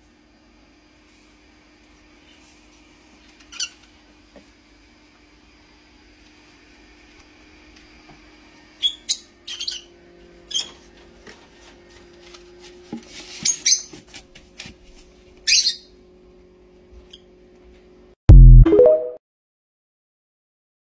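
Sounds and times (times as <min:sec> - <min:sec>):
parrot chirping and squawking: 0:08.8 - 0:09.9, 0:13.4 - 0:13.9, 0:15.4 - 0:15.9.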